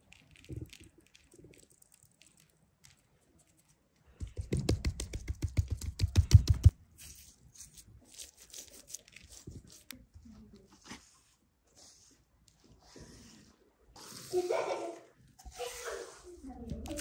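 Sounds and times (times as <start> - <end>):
hands rubbing fish skin: 4.4 - 10.0.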